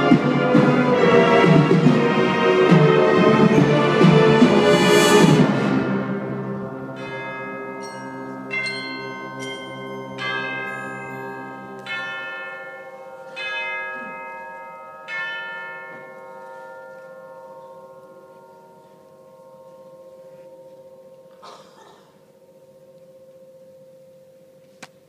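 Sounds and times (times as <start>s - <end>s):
struck bell tones: 6.8s - 24.6s.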